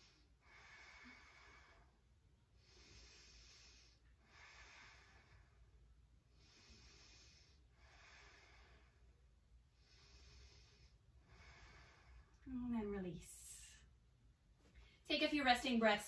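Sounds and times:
slow soft breathing: 0.0 - 12.5.

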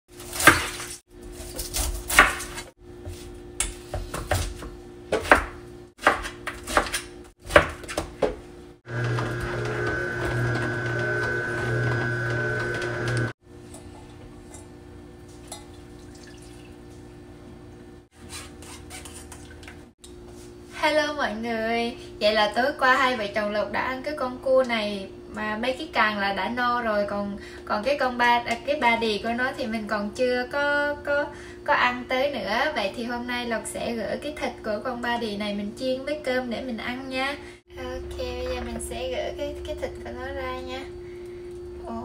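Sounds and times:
juicer motor humming: 8.8 - 14.4.

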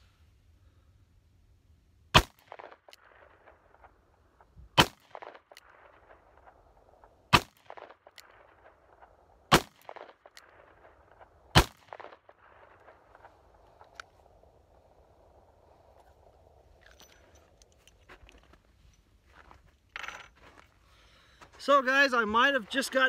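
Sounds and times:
revolver gunshots with echo: 2.1 - 4.0, 4.7 - 13.6.

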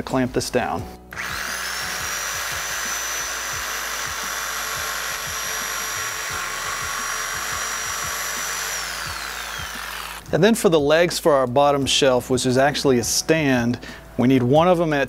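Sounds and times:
jigsaw motor whine: 1.1 - 10.3
blade sawing through wood: 1.1 - 10.4.

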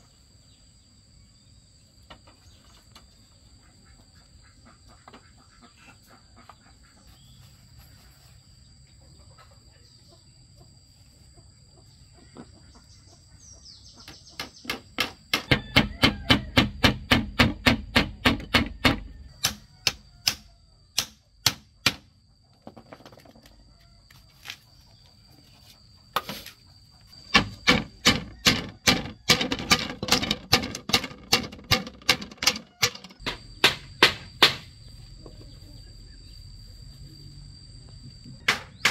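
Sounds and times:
hammer tapping bamboo: 14.1 - 22.1, 27.3 - 34.7, 38.5 - 38.9.

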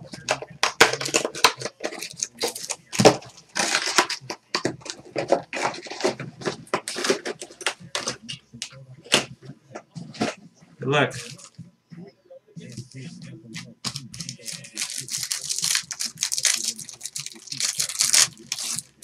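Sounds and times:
plastic wrapper crinkling and tearing: 0.2 - 8.2, 11.1 - 11.5, 13.8 - 19.0.

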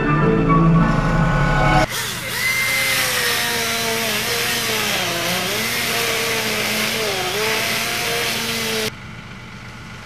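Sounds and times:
chainsaw cutting log: 1.8 - 8.9.

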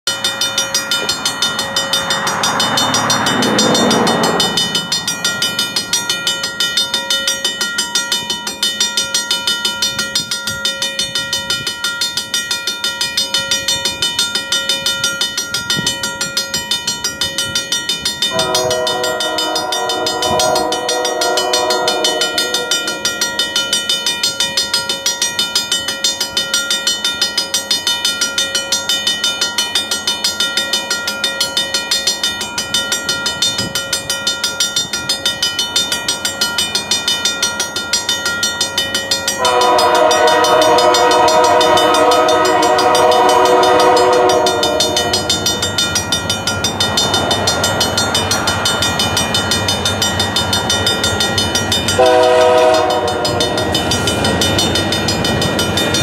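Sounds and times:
rushing sound falling in pitch: 1.1 - 5.9
locomotive horn chord: 18.3 - 23.1, 39.4 - 45.6, 52.0 - 53.8.

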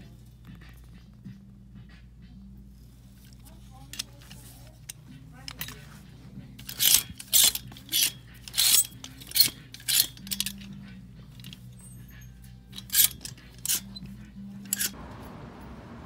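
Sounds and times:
plastic hangers clacking: 3.1 - 15.0.

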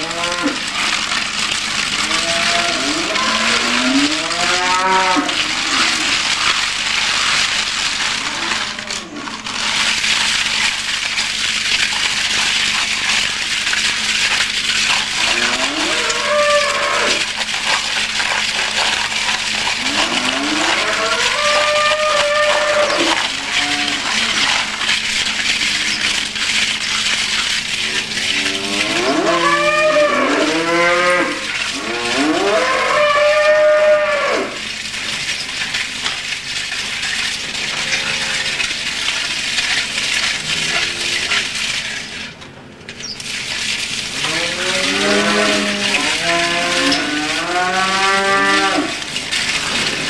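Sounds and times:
cattle mooing: 0.0 - 0.7, 2.0 - 6.4, 15.2 - 17.3, 19.6 - 24.7, 28.0 - 34.6, 37.5 - 38.7, 40.4 - 41.4, 44.2 - 49.0.

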